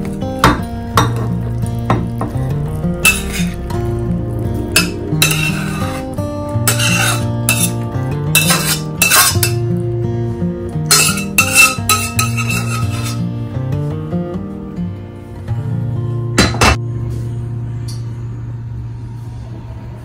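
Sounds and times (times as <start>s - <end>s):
background guitar music: 0.0s - 19.3s
spatula scraping metal pan: 3.0s - 3.6s, 4.8s - 9.6s, 10.9s - 13.3s.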